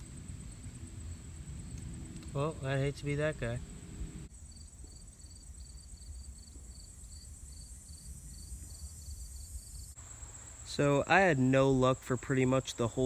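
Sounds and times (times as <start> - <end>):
low rumble: 0.0 - 4.3
insect chirping: 0.0 - 13.0
insect high-pitched trill: 0.0 - 13.0.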